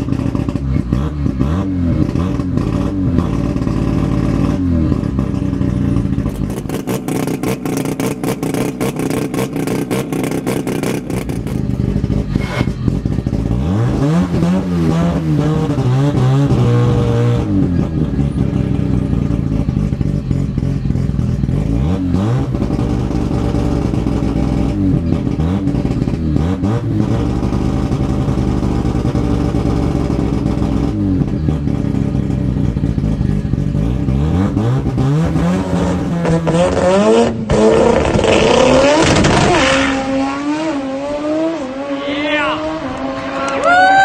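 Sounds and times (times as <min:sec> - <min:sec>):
rotary engine at full throttle: 0:00.0 - 0:44.0.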